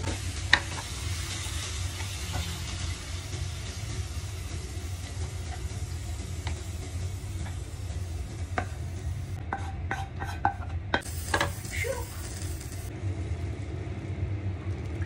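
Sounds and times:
steady low hum: 0.0 - 15.0
spatula scraping frying pan: 9.4 - 11.6.

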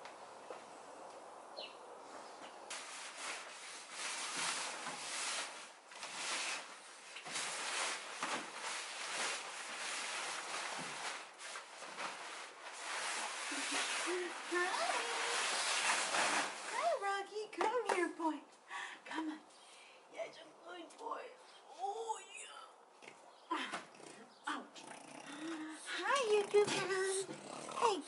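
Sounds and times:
fabric cover rustling: 2.7 - 17.1.

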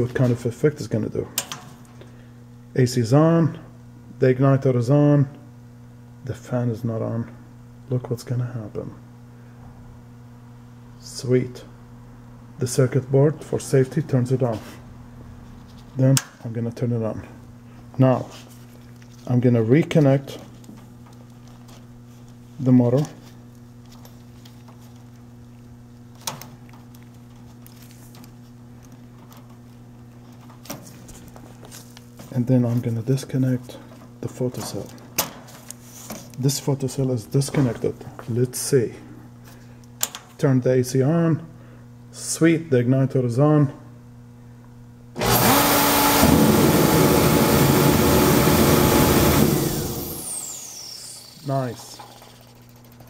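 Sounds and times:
steady low hum: 0.0 - 45.2
heater fan rushing air: 9.1 - 53.0.

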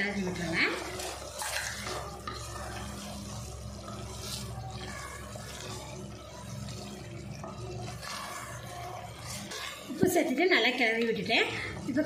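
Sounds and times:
spatula scraping wet food: 0.2 - 12.0.

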